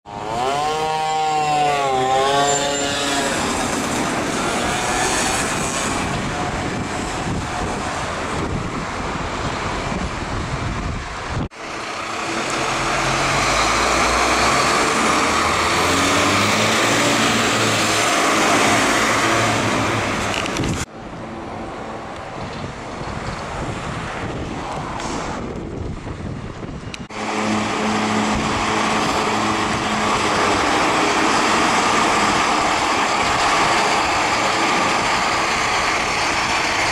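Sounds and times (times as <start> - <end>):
dense traffic noise: 0.0 - 36.9
fire engine siren wailing: 0.1 - 9.0, 11.6 - 20.1, 27.1 - 36.9
diesel engine driving by: 0.1 - 22.2, 27.1 - 36.9.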